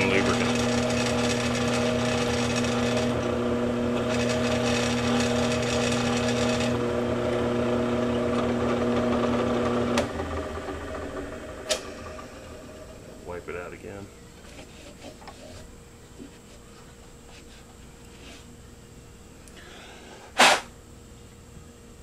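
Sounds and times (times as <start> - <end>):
drill press cutting steel: 0.0 - 6.8, 11.6 - 13.1.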